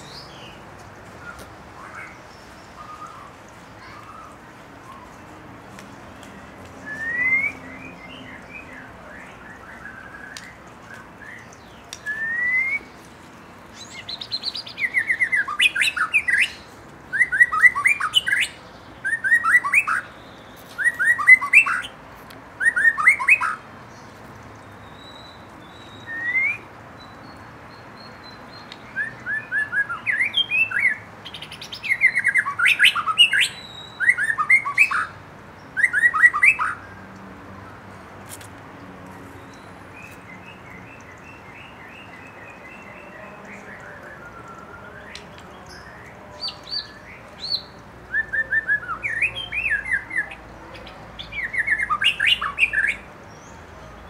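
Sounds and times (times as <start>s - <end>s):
bird singing whistles: 6.8s - 13.0s, 13.8s - 20.1s, 20.7s - 21.9s, 22.6s - 23.6s, 25.0s - 26.7s, 28.9s - 35.1s, 35.8s - 36.8s, 40.0s - 50.4s.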